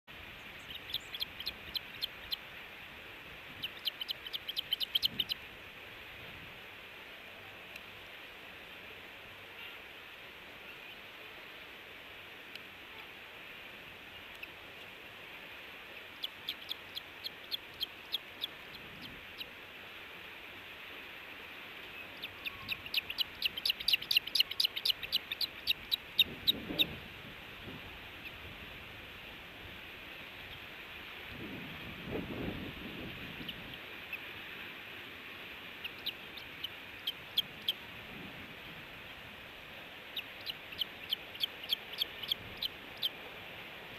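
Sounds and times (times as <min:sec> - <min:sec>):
steady hiss: 0:00.1 - 0:43.9
osprey chirping: 0:00.3 - 0:02.4, 0:03.5 - 0:05.4, 0:16.0 - 0:19.5, 0:21.8 - 0:26.9, 0:35.8 - 0:37.8, 0:40.1 - 0:43.2.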